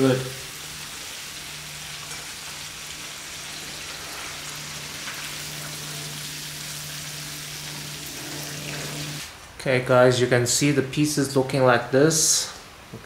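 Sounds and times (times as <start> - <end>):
hot oil sizzling: 0.0 - 9.4.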